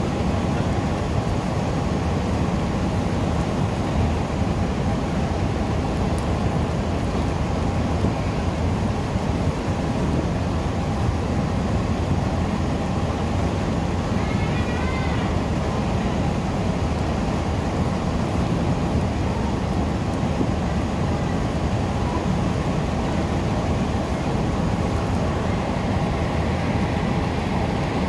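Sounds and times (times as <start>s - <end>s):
ferry engine rumble and rushing: 15.1s - 28.0s.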